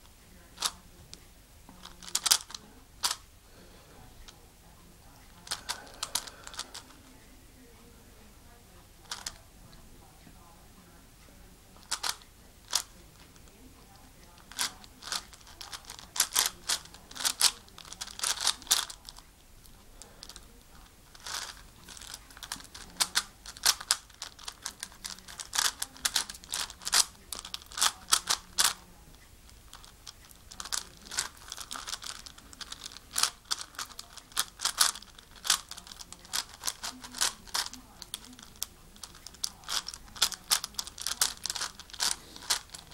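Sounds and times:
puzzle cube layers clicking: 1.9 - 3.2, 14.4 - 19.0, 21.1 - 28.9, 29.6 - 42.9.

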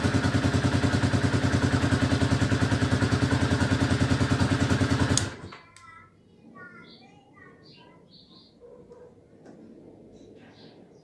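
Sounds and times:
motorcycle engine idling: 0.0 - 5.6.

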